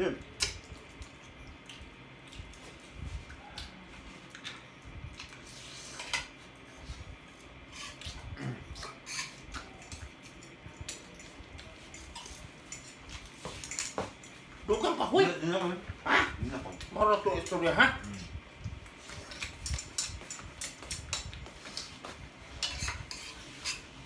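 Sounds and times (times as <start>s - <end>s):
utensils clinking on a plate: 7.8s - 14.5s, 16.6s - 18.3s, 19.2s - 24.0s.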